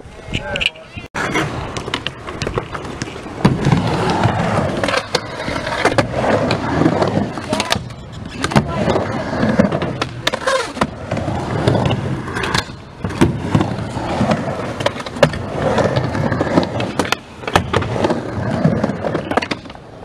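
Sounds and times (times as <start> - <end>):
skateboard wheels rolling on wood: 1.2 - 20.0
skateboard clacks: 1.7 - 20.0.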